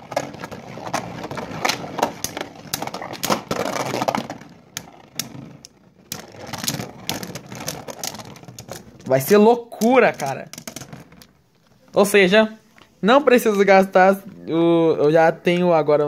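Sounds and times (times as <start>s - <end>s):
spinning tops whirring and scraping: 0.0s - 11.3s.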